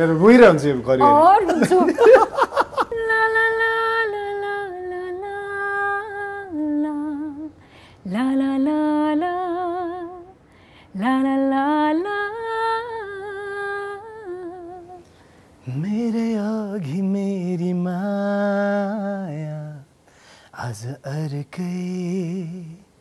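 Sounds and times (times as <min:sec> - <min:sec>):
woman singing unaccompanied: 0:01.0 - 0:19.8
singer breathing: 0:07.6 - 0:08.1, 0:10.4 - 0:11.0, 0:20.0 - 0:20.6.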